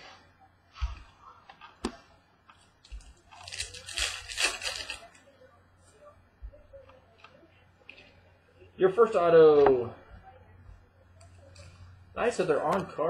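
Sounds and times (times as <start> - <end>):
card pack wrapper tearing open: 3.4 - 5.2.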